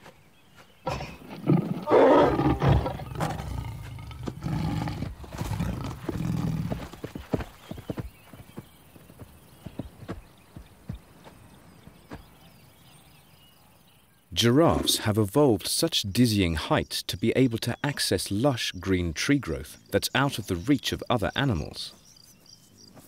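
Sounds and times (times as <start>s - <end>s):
lioness growling: 0.8s - 7.2s
galloping hoofbeats: 3.4s - 12.5s.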